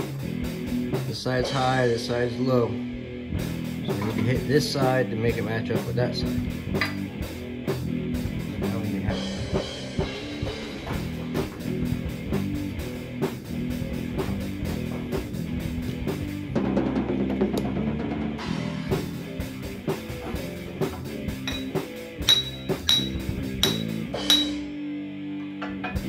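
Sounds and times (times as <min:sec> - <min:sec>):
background music with drums and guitar: 0:00.0 - 0:26.0.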